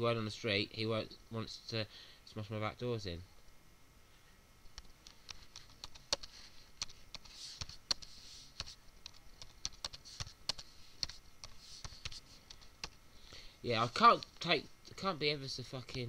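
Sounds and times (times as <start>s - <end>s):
computer keyboard typing: 4.8s - 13.0s.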